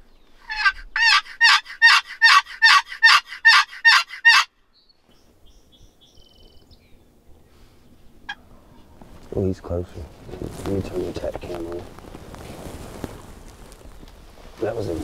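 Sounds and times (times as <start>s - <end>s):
turkey call yelps: 0.4s - 4.5s.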